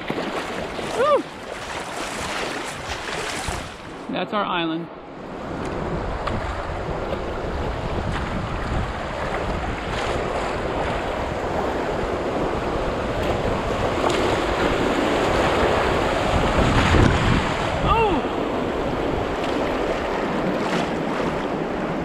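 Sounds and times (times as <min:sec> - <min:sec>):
river water rushing: 0:00.0 - 0:22.0
wind buffeting microphone: 0:05.1 - 0:22.0.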